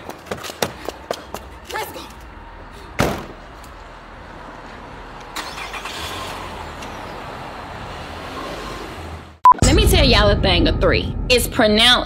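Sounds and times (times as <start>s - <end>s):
car door slamming: 3.0s - 3.4s
car engine starting and running: 3.8s - 9.5s.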